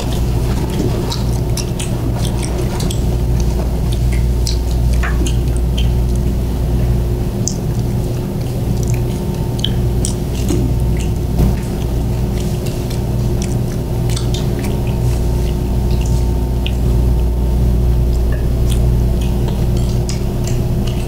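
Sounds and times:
people chewing: 0.0s - 21.0s
steady low hum: 0.0s - 21.0s
mouth clicks and smacks: 7.4s - 16.9s, 18.1s - 21.0s.

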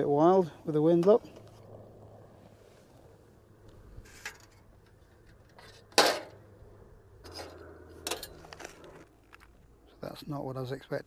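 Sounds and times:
sharp metallic clank: 5.8s - 6.4s.

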